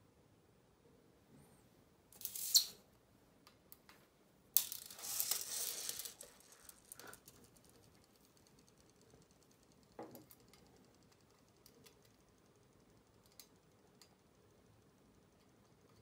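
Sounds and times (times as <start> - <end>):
faint metal clicks and ticks: 6.0 - 16.0.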